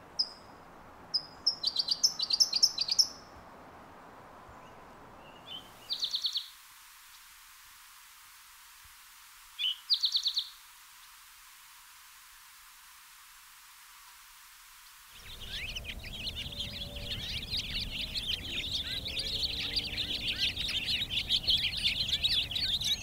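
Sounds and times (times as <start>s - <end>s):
bird trills: 15.2s - 23.0s.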